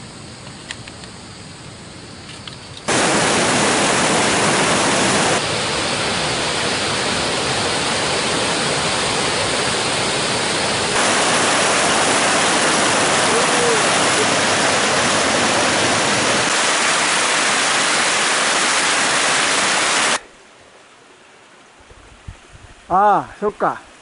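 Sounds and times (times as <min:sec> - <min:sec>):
faint hiss: 0:00.0 - 0:24.0
stream rushing over rocks: 0:02.9 - 0:21.8.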